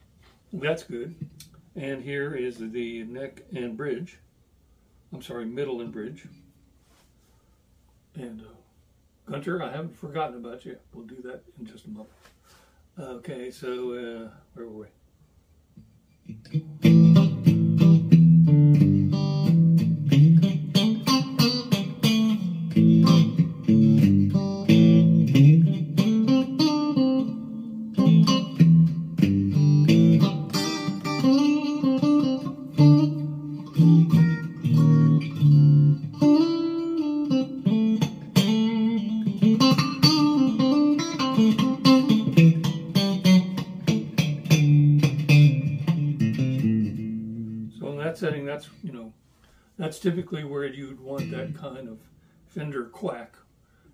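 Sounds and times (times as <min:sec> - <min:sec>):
electric guitar through an amp: 0:16.2 - 0:47.8, 0:51.1 - 0:51.8.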